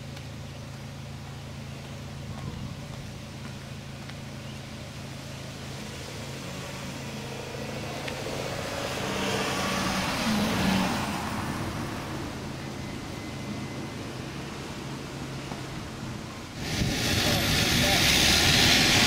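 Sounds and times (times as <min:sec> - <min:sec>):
car passing by: 0:05.8 - 0:12.5, 0:16.6 - 0:19.0.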